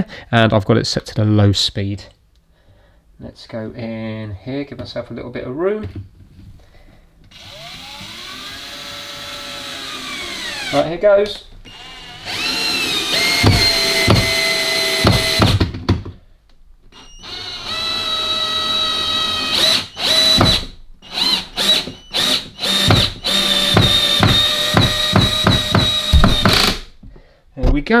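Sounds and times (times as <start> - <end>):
cordless drill motor whine: 7.3 - 10.7, 11.7 - 15.5, 16.9 - 26.7.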